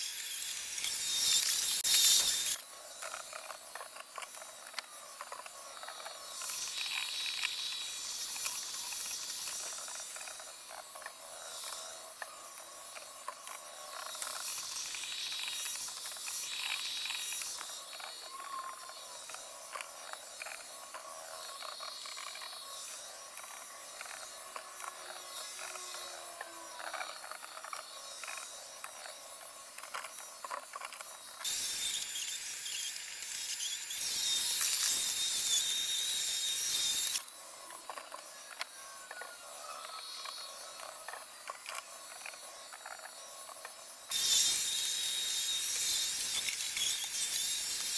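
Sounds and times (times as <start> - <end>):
robot vacuum clicking and hissing: 0.0 - 47.9.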